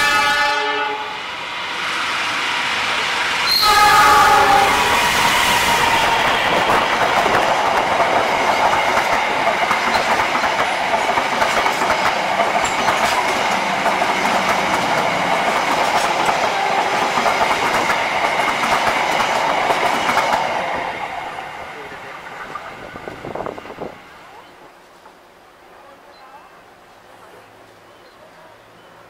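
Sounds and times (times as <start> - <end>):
train wheels clicking over rail joints: 6.5 - 20.6.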